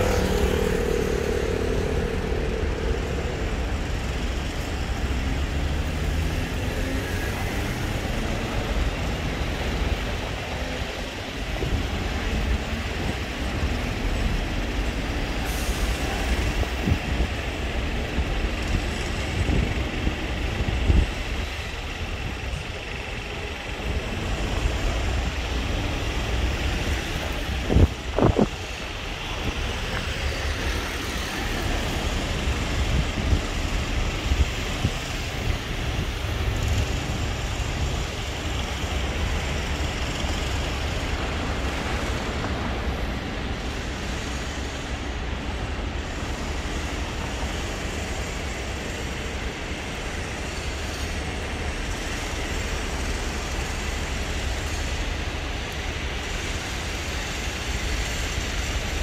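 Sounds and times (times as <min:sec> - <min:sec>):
short pitched sound: 0:00.0 - 0:06.2
low rumble of passing vehicles: 0:00.0 - 0:59.0.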